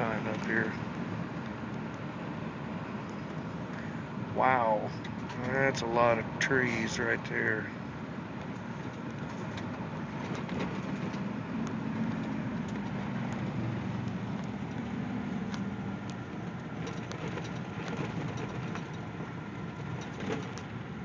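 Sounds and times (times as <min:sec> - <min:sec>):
engine drone: 0:00.0 - 0:21.0
small clicks and rattles: 0:08.4 - 0:20.8.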